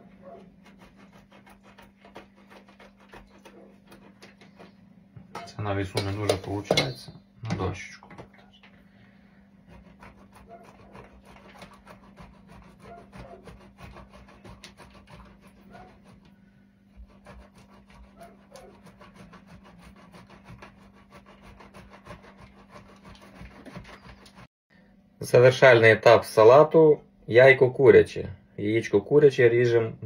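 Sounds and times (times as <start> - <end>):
cheese grater rasping: 0.0 - 4.9, 9.6 - 16.3, 16.9 - 24.5.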